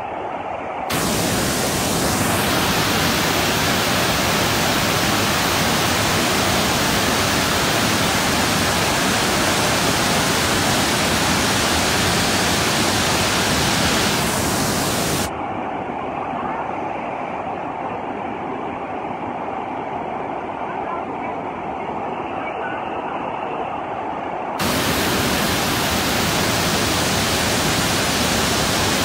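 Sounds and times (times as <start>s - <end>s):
river rushing over rapids: 0.9s - 15.3s, 24.6s - 29.0s.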